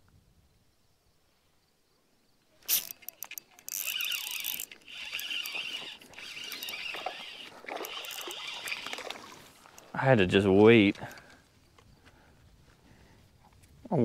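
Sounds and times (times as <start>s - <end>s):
fishing reel whirring: 2.6s - 9.9s.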